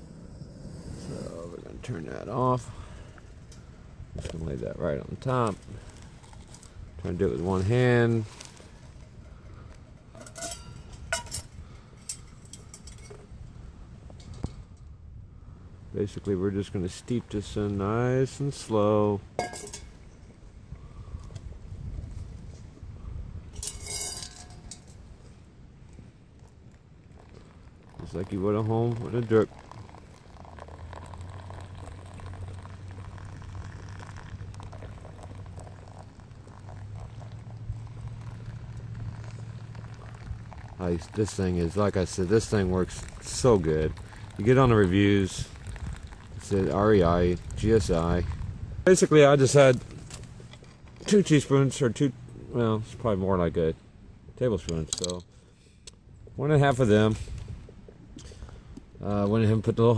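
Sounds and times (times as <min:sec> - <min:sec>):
cookware clinking and tapping: 0:10.2 - 0:11.4, 0:19.4 - 0:19.9
water trickling through filter: 0:26.4 - 0:49.0.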